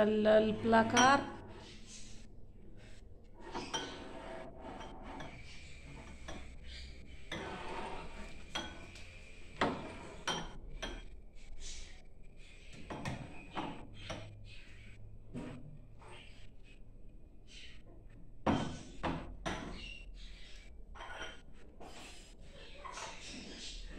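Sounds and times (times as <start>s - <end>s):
glasses and dishes clinking: 0.8s - 1.4s, 3.5s - 6.6s, 8.3s - 11.1s.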